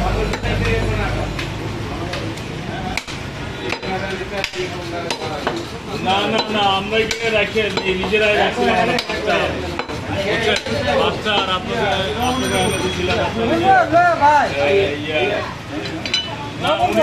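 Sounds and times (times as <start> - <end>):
people talking: 0.0 - 17.0
knife chopping on wooden block: 2.9 - 5.7.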